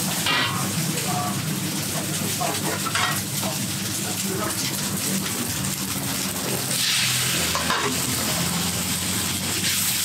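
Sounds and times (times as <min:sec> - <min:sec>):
food sizzling in a wok: 0:00.0 - 0:10.0
spatula scraping a wok: 0:06.7 - 0:10.0.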